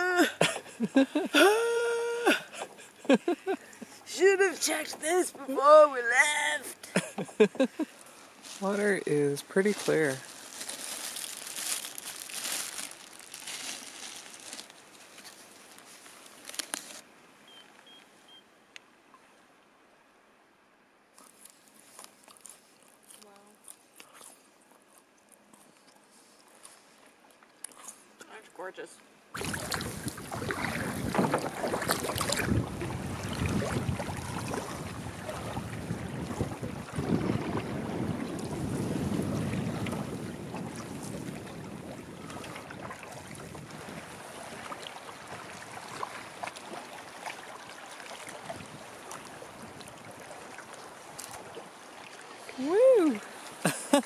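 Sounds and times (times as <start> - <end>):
water lapping against canoe: 0.0 - 6.1, 29.3 - 53.6
crinkling rustling: 8.4 - 17.0
wind buffeting microphone: 29.4 - 46.0.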